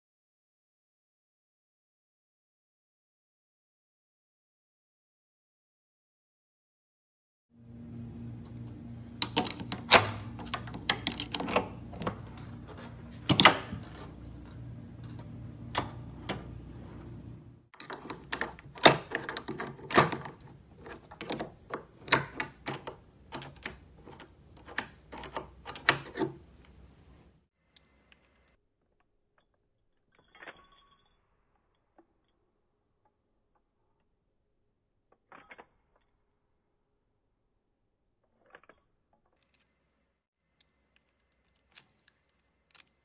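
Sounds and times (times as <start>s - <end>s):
low steady hum: 7.6s - 17.7s
key tool clicking in lock: 9.2s - 16.6s, 17.8s - 27.0s, 40.9s - 43.0s.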